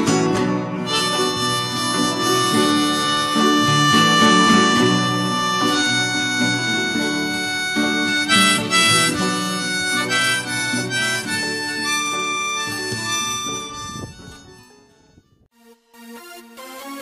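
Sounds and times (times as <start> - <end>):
harmonica melody: 0.0 - 17.0
chordal accompaniment: 0.8 - 9.2.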